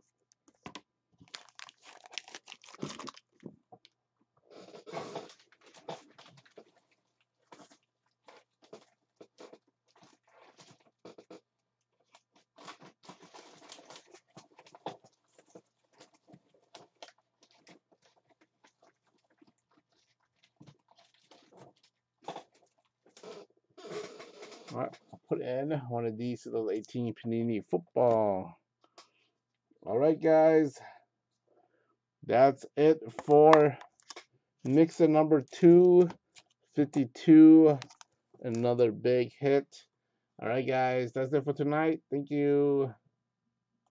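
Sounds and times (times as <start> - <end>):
plastic packaging crinkling: 1.2 - 3.6, 12.1 - 22.9.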